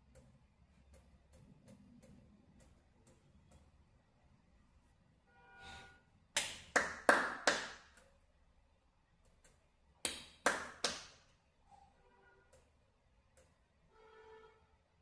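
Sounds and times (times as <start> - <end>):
hand claps: 6.4 - 8.0, 10.0 - 11.3.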